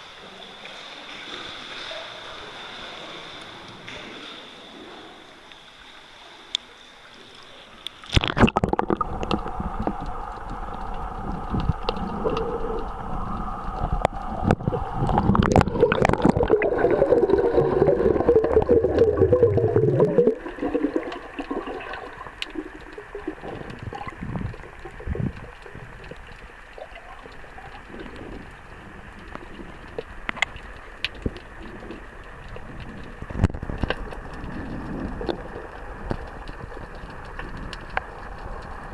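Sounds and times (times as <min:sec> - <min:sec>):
muffled underwater sound: 0:00.0 - 0:38.9
water sloshing and bubbling: 0:00.0 - 0:38.9
underwater clicks: 0:07.8 - 0:38.9.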